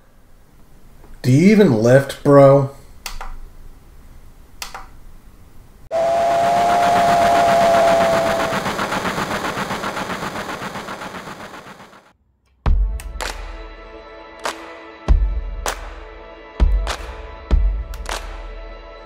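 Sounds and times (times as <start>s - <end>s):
single click: 4.6s - 4.9s
steam locomotive whistle: 5.9s - 9.9s
steam locomotive chuffing: 5.9s - 12.0s.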